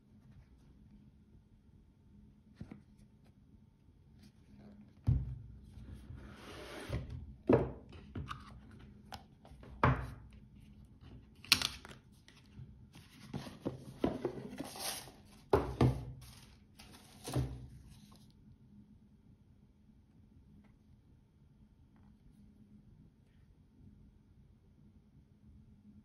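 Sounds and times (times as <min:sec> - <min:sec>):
cardboard boxes sliding and scraping: 0:06.1 - 0:07.1, 0:13.0 - 0:15.4
boxes knocking on table: 0:15.5 - 0:16.2.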